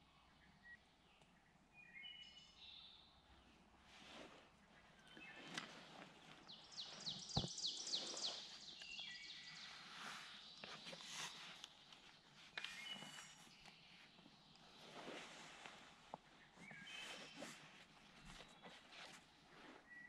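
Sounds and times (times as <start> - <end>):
songbird singing: 0.0 - 3.8, 4.5 - 20.0
faint rustling and clicks: 4.0 - 19.9.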